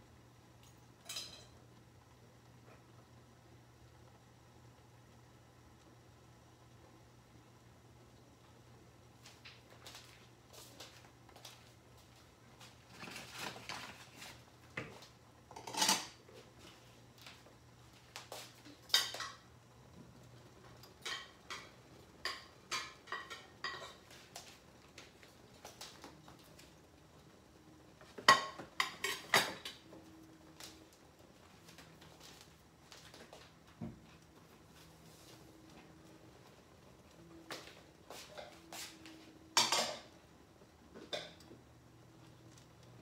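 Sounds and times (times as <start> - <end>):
kitchenware clinking and clattering: 0.6 - 1.6, 12.9 - 16.3, 18.8 - 19.5, 20.7 - 24.6, 28.0 - 30.3, 39.3 - 40.2, 41.0 - 41.5.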